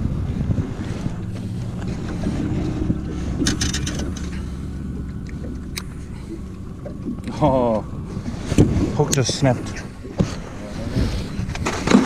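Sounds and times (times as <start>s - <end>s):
boat motor humming: 0.0s - 12.0s
wind on microphone: 0.0s - 12.0s
sharp clicks and rattles: 1.3s - 7.3s.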